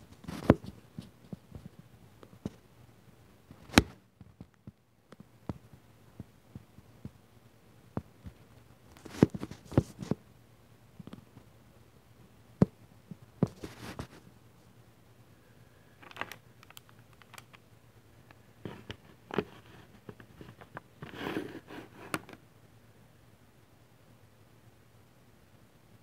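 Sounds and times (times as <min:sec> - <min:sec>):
rustling: 0:18.3 - 0:22.4.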